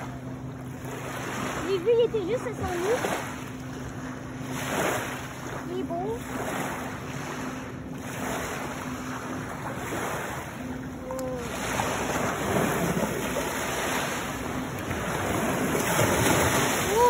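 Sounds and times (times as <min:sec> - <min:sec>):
lake waves lapping on sandy shore: 0:00.0 - 0:17.0.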